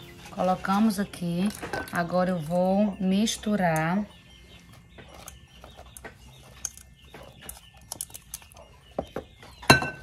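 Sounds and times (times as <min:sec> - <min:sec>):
pot clattering: 0:09.6 - 0:10.0.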